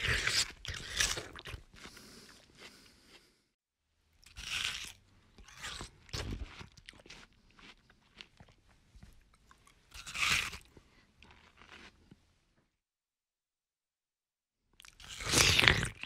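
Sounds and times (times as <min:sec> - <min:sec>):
biting into watermelon: 0:00.0 - 0:03.2, 0:04.3 - 0:08.6, 0:09.6 - 0:12.0, 0:14.8 - 0:16.0
person chewing: 0:00.0 - 0:03.4, 0:04.2 - 0:12.3, 0:14.8 - 0:16.0.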